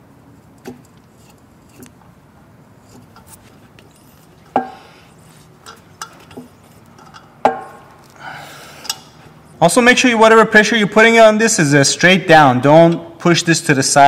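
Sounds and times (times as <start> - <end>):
metal tap clicking and clinking: 5.6 - 7.9.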